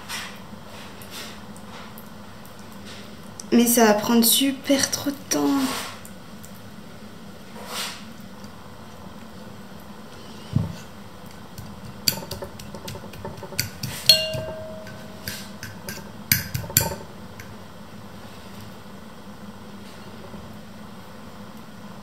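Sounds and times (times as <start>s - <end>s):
fork scraping a ceramic bowl: 11.6s - 17.5s
bowl ringing: 14.0s - 17.6s.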